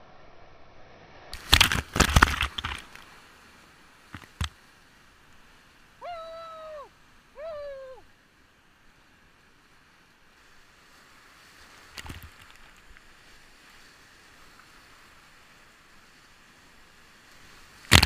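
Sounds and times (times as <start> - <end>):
whitewater churning: 1.4 - 8.2, 10.5 - 18.0
high-pitched shouts: 6.0 - 8.0.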